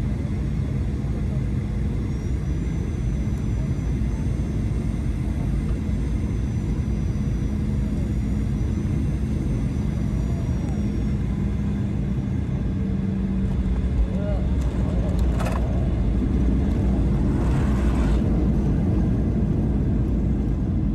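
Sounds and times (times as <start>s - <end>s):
constant low hum: 0.0s - 20.9s
vehicle rumble: 12.4s - 20.9s.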